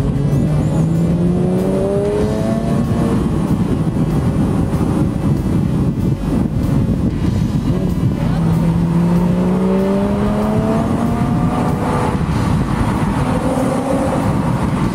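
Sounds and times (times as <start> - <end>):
car engine revving up: 0.0 - 14.9
road and wind noise: 0.0 - 14.9.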